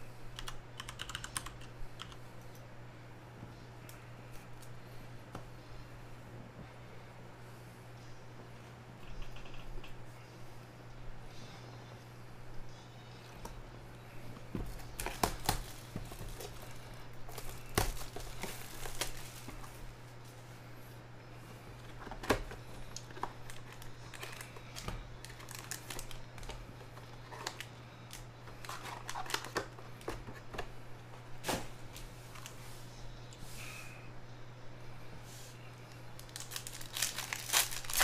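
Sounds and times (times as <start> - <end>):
foil packs crinkling: 14.7 - 20.0, 22.0 - 30.5, 36.1 - 38.0.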